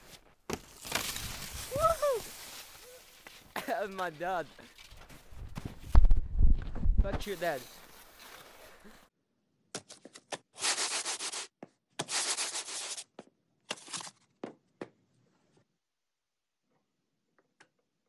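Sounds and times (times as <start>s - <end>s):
sandpaper rubbing on wood: 10.6s - 11.5s.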